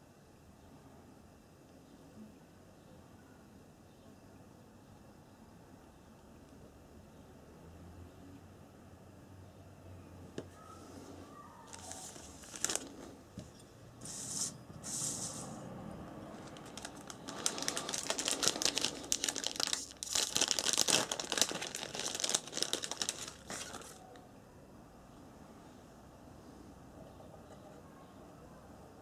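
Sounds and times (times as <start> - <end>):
packaging rustling and crinkling: 11.7 - 13.1, 16.3 - 24.2.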